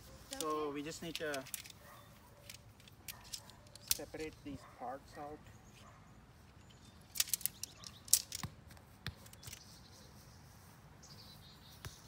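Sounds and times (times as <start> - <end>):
metal stakes clinking together: 0.3 - 4.6, 6.5 - 8.4.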